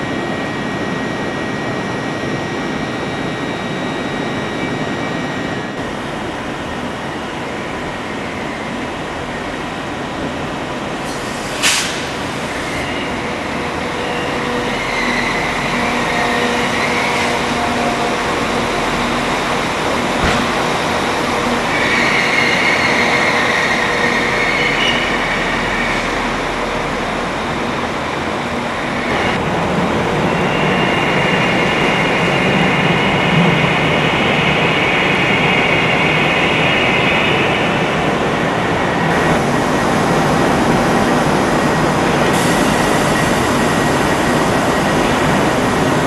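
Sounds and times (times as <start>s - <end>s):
high-pitched train squeals: 0.0s - 5.8s, 11.1s - 29.4s, 30.1s - 39.2s
trains moving slowly: 0.0s - 46.0s.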